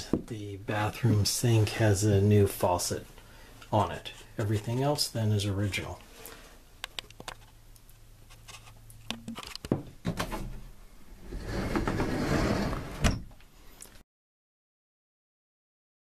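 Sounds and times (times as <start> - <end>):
sliding door rumbling: 11.2 - 13.2.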